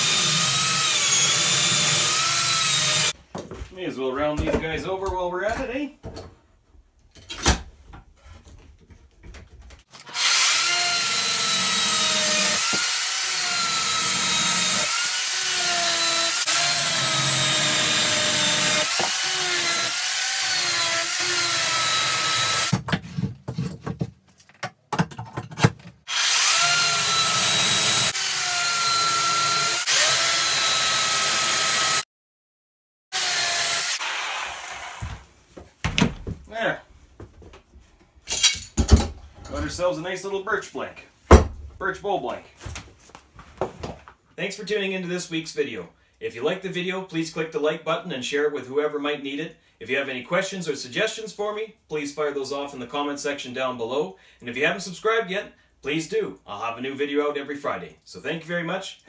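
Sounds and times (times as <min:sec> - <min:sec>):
electric chainsaw cutting log: 0:00.0 - 0:03.1, 0:10.0 - 0:22.7, 0:26.1 - 0:32.0, 0:33.1 - 0:35.2.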